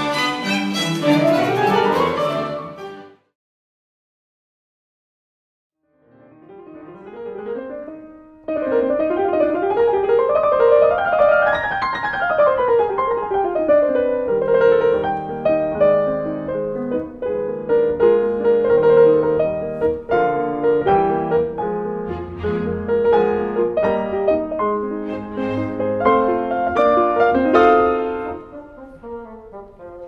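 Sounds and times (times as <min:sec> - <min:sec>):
held orchestral chords: 0:00.0 - 0:03.3.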